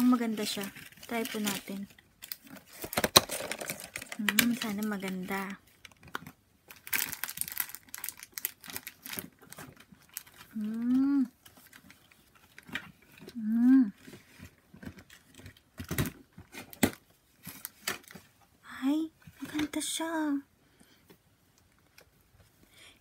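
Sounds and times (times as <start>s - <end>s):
person humming: 10.6s - 11.3s, 13.4s - 14.0s.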